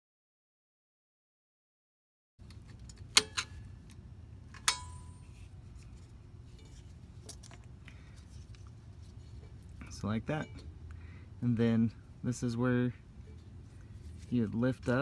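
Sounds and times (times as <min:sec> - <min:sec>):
low steady hum: 0:02.4 - 0:15.0.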